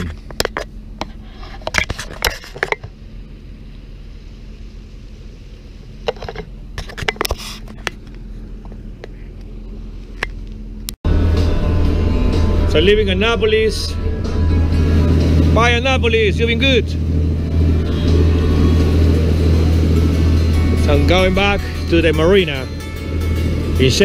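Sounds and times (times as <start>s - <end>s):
boat engine idling: 2.9s - 6.8s, 7.6s - 24.0s.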